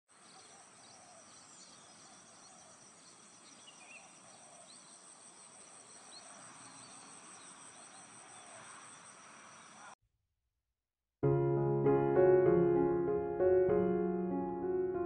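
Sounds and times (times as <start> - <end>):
insect trill: 0.2 - 10.0.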